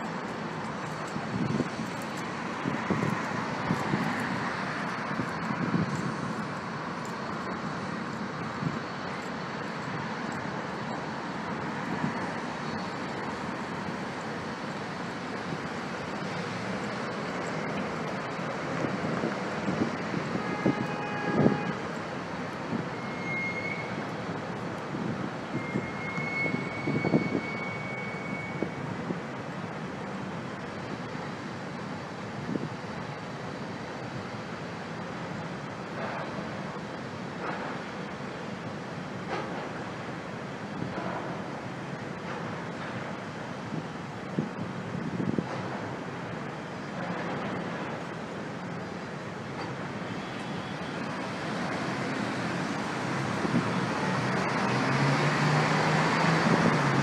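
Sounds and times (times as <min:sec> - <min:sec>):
train wheels rumbling on bridge: 0:00.0 - 0:57.0
high-pitched squeal: 0:22.8 - 0:24.0, 0:25.5 - 0:28.8.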